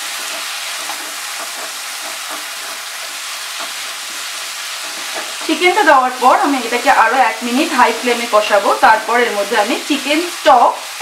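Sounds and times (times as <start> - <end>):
wooden spatula scraping a pan: 0.0 - 8.6
chicken sizzling in a pan: 0.0 - 11.0.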